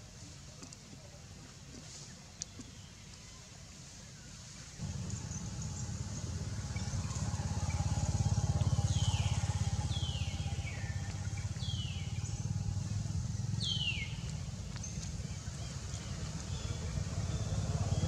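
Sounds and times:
vehicle engine rumbling: 0:04.8 - 0:18.0.

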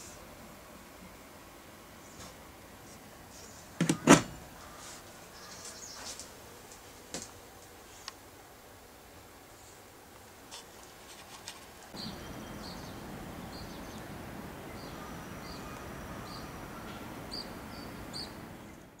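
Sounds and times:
steady background noise: 0:00.0 - 0:19.0
bird chirping: 0:11.9 - 0:19.0.

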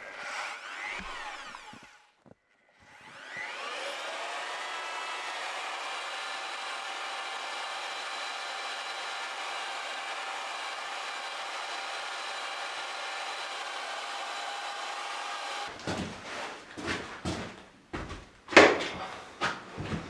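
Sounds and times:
electric paddle mixer motor whine: 0:00.0 - 0:02.1, 0:02.8 - 0:15.7.

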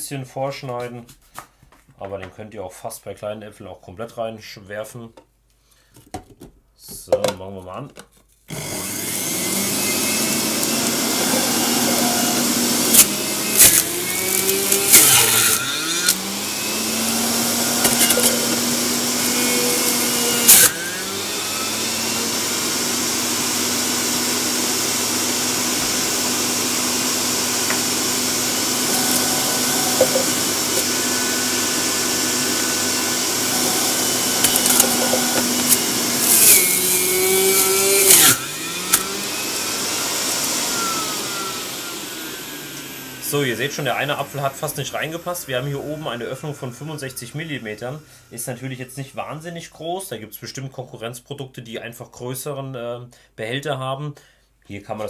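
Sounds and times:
juicer motor whining: 0:08.5 - 0:48.2.

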